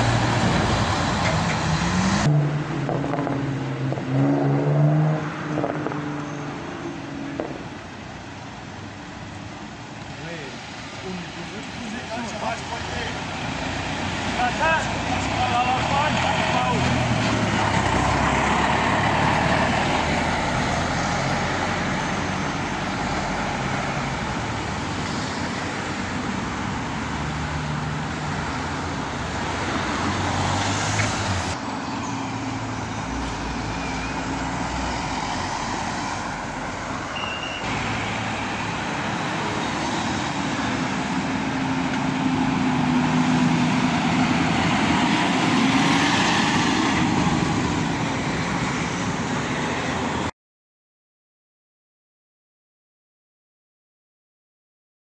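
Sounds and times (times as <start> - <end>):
tractor diesel engine: 0.0 - 3.8, 6.4 - 50.3
cars driving past: 0.0 - 50.3
road traffic hiss: 6.2 - 50.3
lorry driving past: 10.6 - 24.3.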